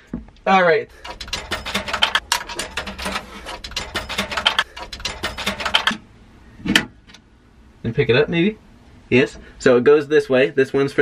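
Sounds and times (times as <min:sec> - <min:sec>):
coins dropping into coin slot: 0:01.0 - 0:06.0.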